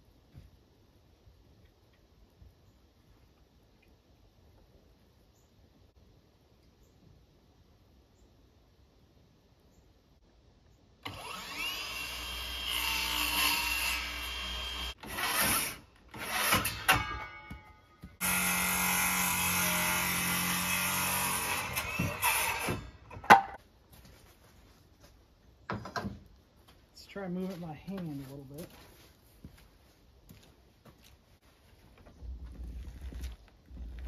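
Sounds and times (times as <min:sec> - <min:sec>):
small electric motor running: 0:11.1 - 0:15.4.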